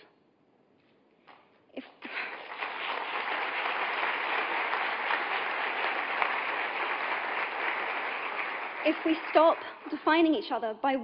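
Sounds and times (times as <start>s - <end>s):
audience applause: 2.0s - 9.8s.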